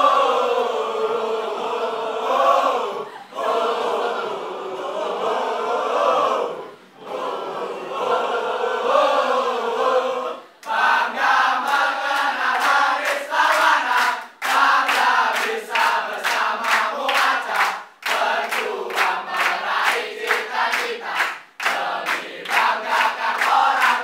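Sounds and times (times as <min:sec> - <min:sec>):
group of voices singing: 0:00.0 - 0:24.0
hand claps: 0:11.6 - 0:24.0.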